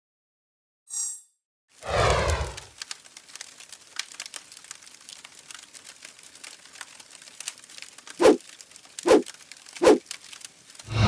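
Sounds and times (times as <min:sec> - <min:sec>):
fire crackling: 0:01.7 - 0:11.0.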